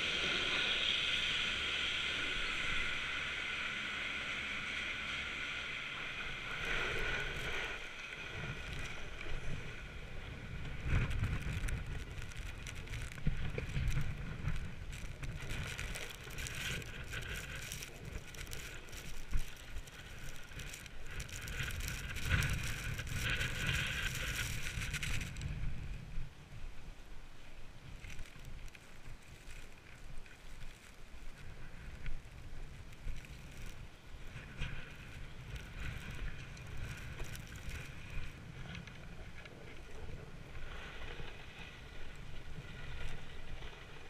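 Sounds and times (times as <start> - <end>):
chairlift machinery humming: 0.0 - 12.0
skis scraping over hard snow: 0.0 - 26.2, 27.6 - 44.0
wind on microphone: 0.0 - 44.0.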